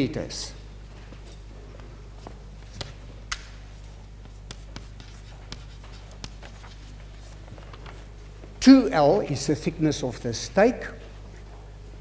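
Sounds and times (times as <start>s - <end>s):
chalk tapping and scratching: 2.6s - 7.4s.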